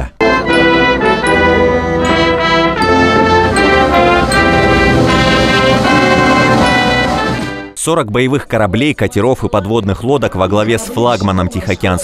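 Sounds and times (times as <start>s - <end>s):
brass band playing: 0.2s - 7.8s.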